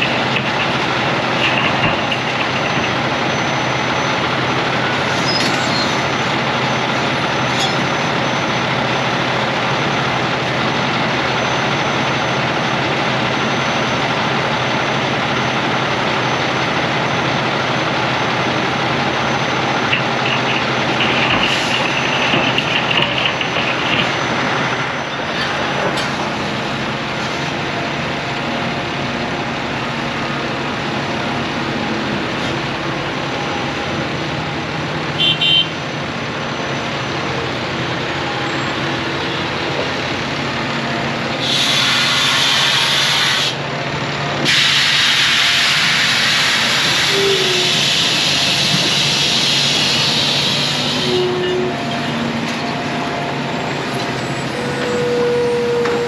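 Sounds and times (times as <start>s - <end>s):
excavator diesel engine running: 0.0s - 56.0s.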